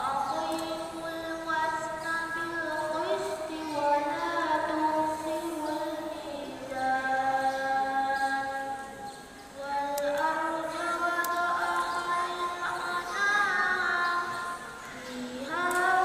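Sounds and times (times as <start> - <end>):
young voice chanting recitation: 0.0 - 16.0.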